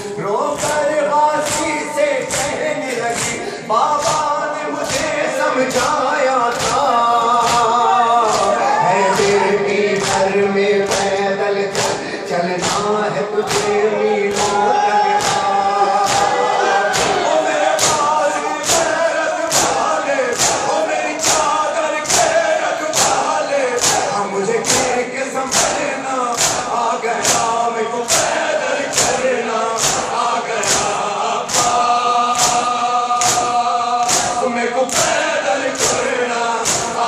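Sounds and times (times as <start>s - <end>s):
crowd of men chanting: 0.0s - 37.0s
hands slapping chests: 0.5s - 3.4s, 4.0s - 5.1s, 8.3s - 8.6s, 10.0s - 10.2s, 12.6s - 14.6s, 15.2s - 16.3s, 16.9s - 17.2s, 17.8s - 24.9s, 25.5s - 37.0s.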